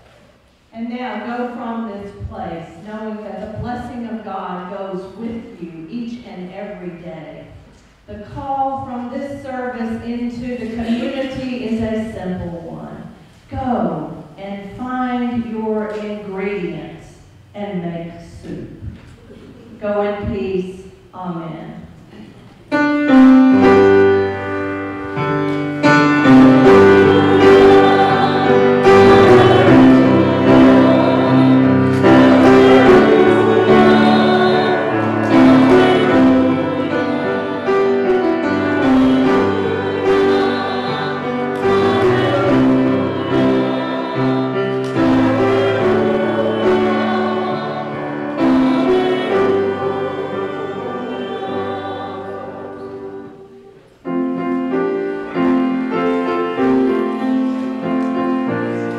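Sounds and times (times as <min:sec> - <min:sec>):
grand piano slow chords: 0:22.5 - 0:58.9.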